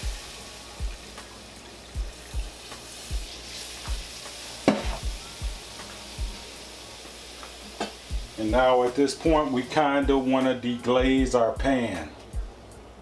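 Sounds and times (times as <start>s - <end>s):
broth sizzling and bubbling in skillet: 0.0s - 10.3s.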